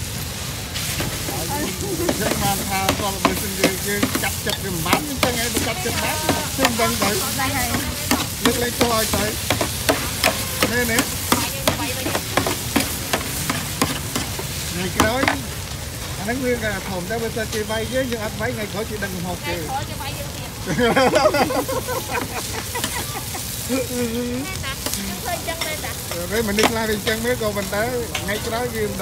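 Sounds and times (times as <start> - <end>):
food sizzling in a pan: 0.0 - 29.0
utensil clinking and scraping pan: 1.0 - 15.4.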